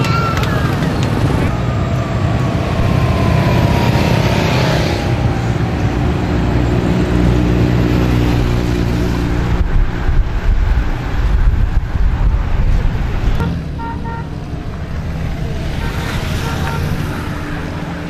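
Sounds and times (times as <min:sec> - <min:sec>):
motorcycle engines passing: 0:00.0 - 0:18.0.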